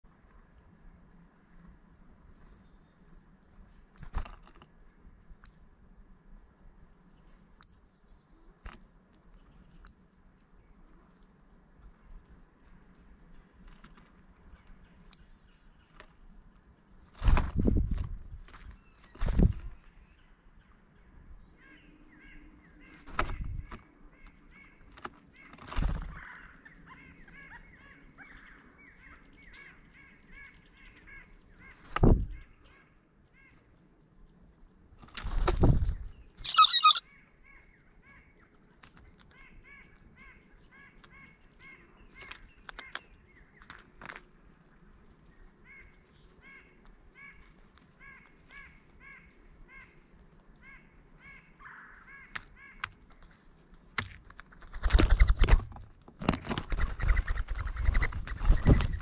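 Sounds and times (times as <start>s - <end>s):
faint bird chirps: 35.8s - 50.0s
blue jay harsh call: 36.4s - 37.0s.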